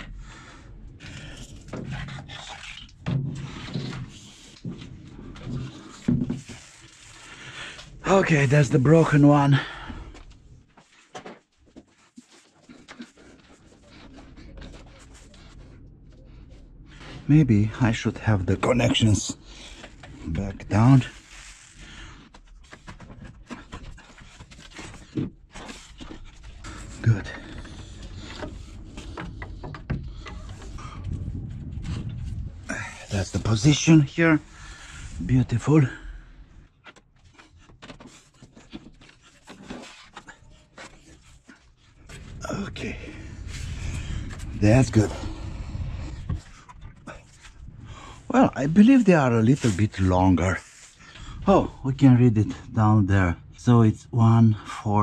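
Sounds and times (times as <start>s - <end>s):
metal frame and cables scraping: 0.0s - 35.9s, 36.5s - 51.4s
rustles and light knocks: 10.1s - 17.3s, 36.6s - 42.5s.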